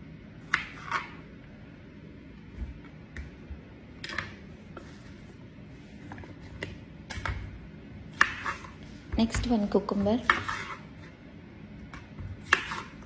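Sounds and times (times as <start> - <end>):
knife chopping cucumber: 12.1 - 13.0.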